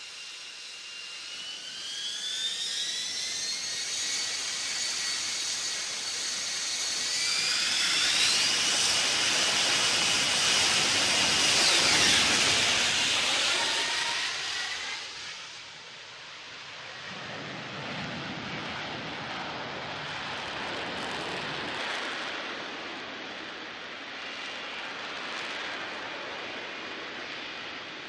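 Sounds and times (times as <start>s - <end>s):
jet engine whining and roaring: 0.0s - 28.0s.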